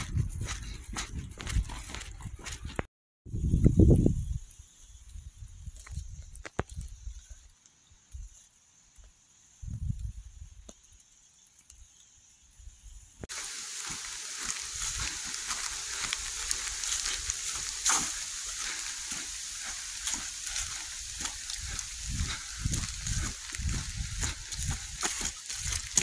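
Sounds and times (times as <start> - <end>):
footsteps crunching on dirt trail: 0.0 - 2.9, 13.3 - 26.0
leaves and brush rustling: 0.0 - 26.0.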